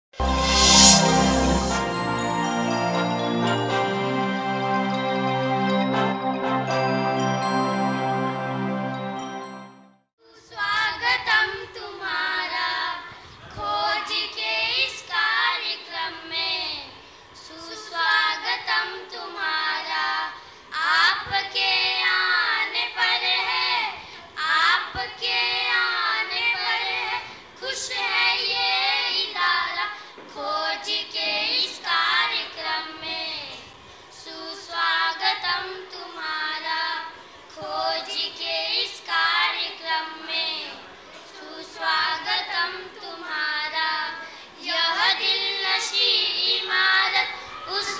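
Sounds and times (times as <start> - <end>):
girls singing together: 10.4 - 47.9.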